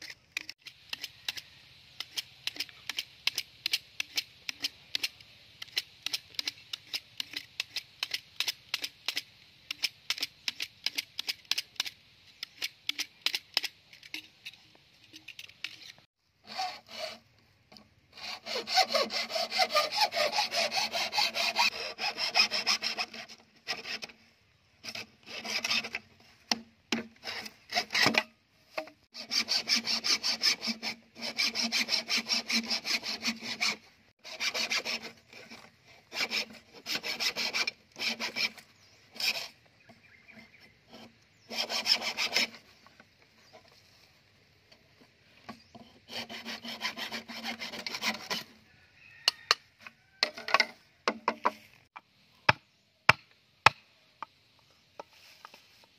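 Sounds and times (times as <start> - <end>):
hacksaw cutting bamboo: 0.0 - 24.2, 24.8 - 39.7, 40.3 - 42.6, 45.5 - 48.6
knife shaving bamboo: 0.0 - 24.2, 24.8 - 39.6, 40.3 - 42.6, 45.6 - 48.6.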